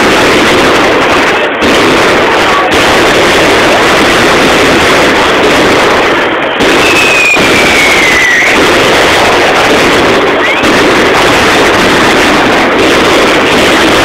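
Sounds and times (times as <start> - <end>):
fireworks crackling and banging: 0.0 - 14.0
falling firework whistle: 6.5 - 12.4.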